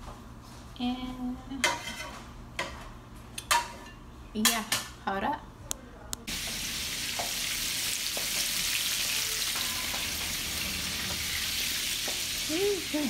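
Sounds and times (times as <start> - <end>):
meat sizzling in fat: 6.3 - 13.0.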